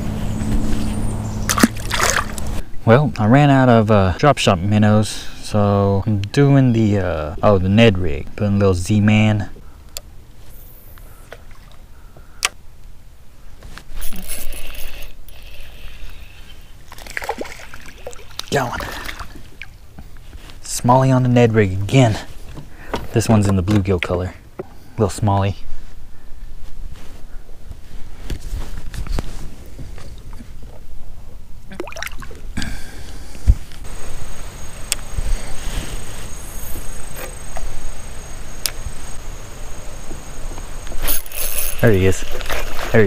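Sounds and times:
water splashing and dripping: 1.4 - 2.6, 16.9 - 19.8, 31.7 - 32.4, 41.2 - 43.0
fishing tackle clicking: 41.0 - 42.6.

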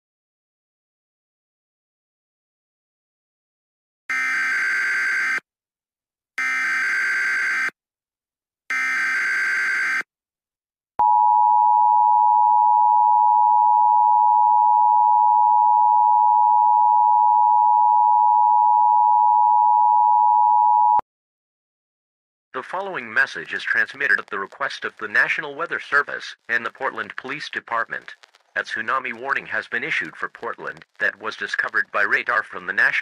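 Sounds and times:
long steady attention tone: 11.0 - 21.0.

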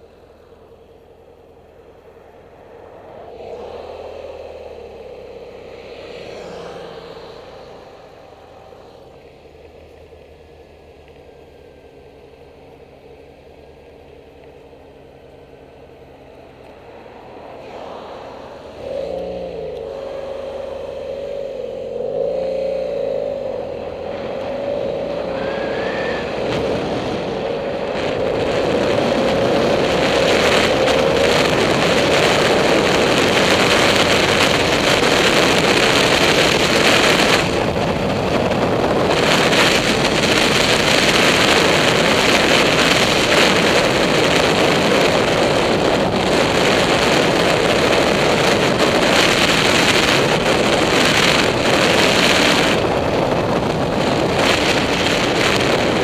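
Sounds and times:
motorcycle engine revving: 0.8 - 56.0
wind rush on microphone: 15.9 - 56.0.

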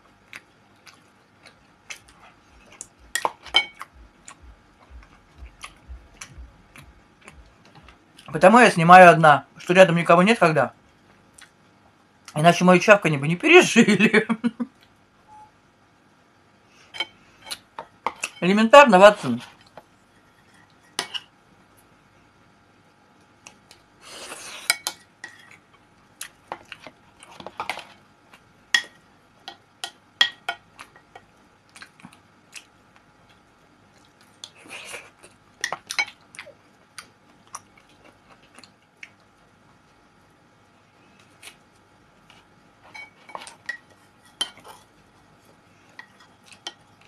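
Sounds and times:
wet chewing and smacking: 0.1 - 8.3, 31.6 - 34.6, 35.2 - 39.4
fork clicking and scraping on plate: 19.7 - 21.3, 42.8 - 44.9.

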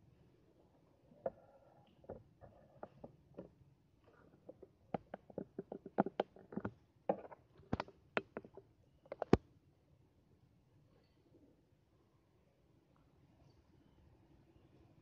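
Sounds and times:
sharp clicks and taps: 4.5 - 9.4.

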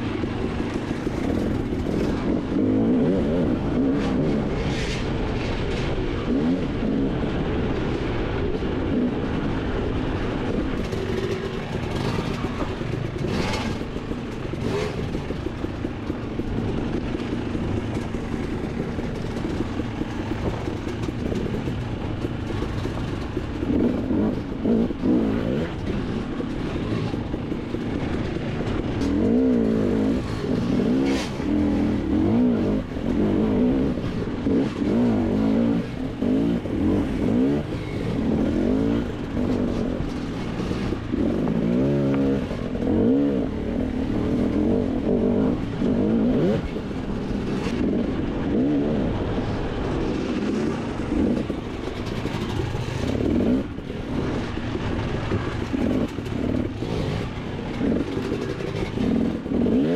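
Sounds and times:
dirt bike engine revving: 8.9 - 15.5, 52.2 - 59.9.

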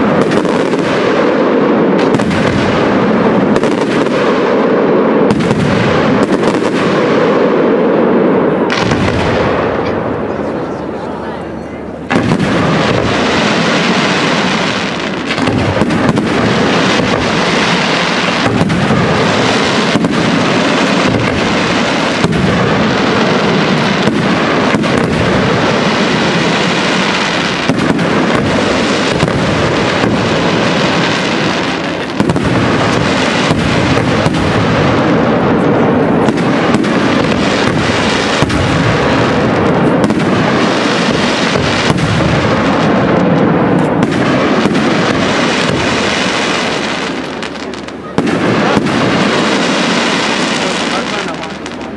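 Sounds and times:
fireworks bursting and crackling: 0.0 - 51.9.

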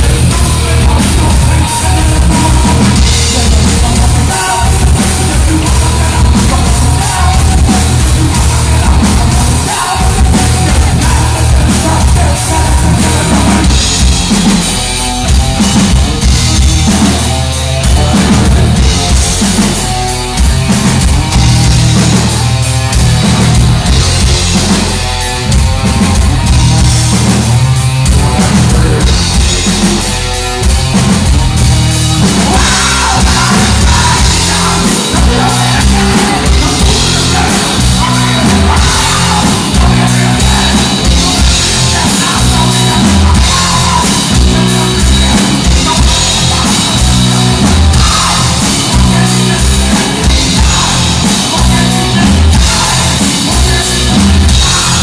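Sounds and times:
person singing: 0.0 - 14.6, 15.2 - 19.8, 28.0 - 30.3, 32.1 - 55.0
bass guitar: 0.0 - 55.0
distorted electric guitars: 0.0 - 55.0
drum kit: 0.0 - 55.0.

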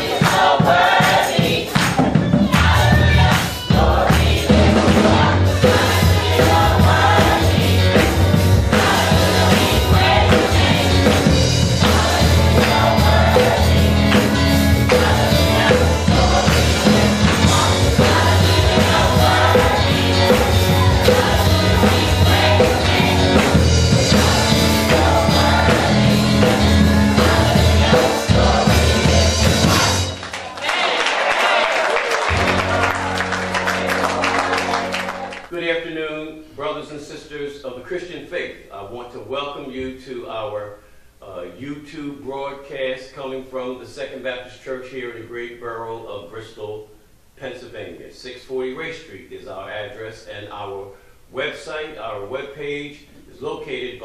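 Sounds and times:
instrumental accompaniment with bass: 0.0 - 30.4, 32.2 - 35.5
choir singing gospel: 0.0 - 35.5.

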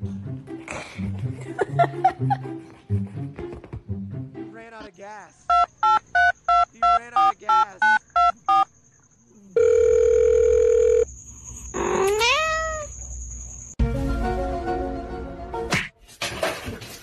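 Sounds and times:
phone keypad beeps: 5.5 - 8.7
cat meowing: 11.8 - 12.9.

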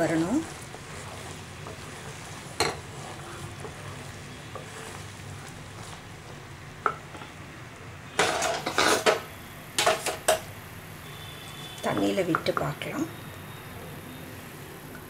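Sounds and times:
spatula scraping a pan: 0.0 - 7.0, 8.2 - 10.3
syrup bubbling: 0.0 - 7.2.

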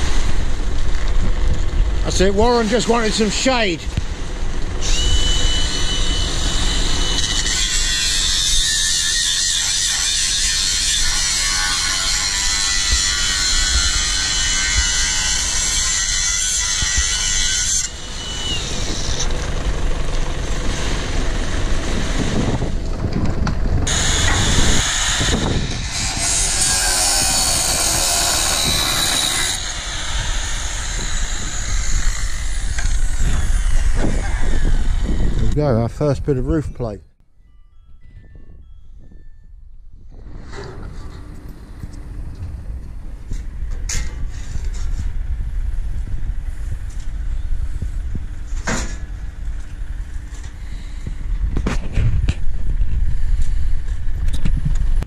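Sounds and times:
angle grinder grinding steel: 4.8 - 19.4, 23.9 - 35.4.

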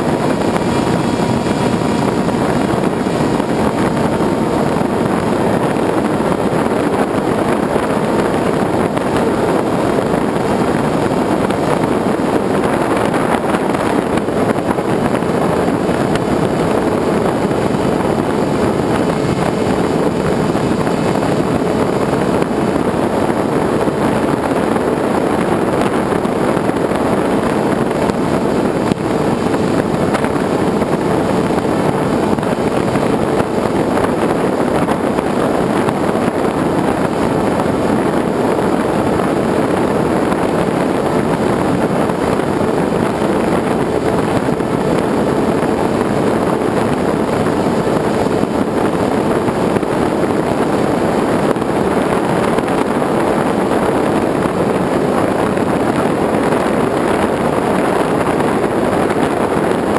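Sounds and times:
wind rushing: 0.0 - 59.9.

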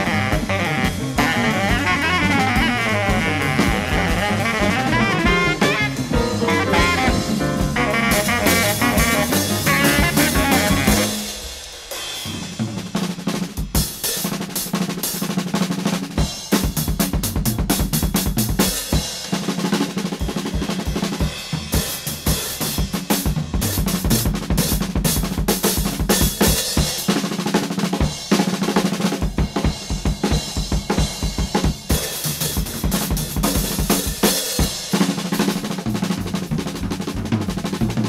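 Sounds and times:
saxophone line: 0.0 - 11.4
jazz drum solo: 0.0 - 38.0.

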